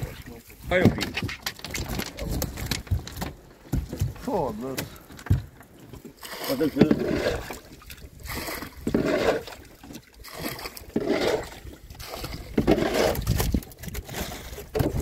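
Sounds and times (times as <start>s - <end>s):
water scooping and pouring splashes: 5.9s - 15.0s.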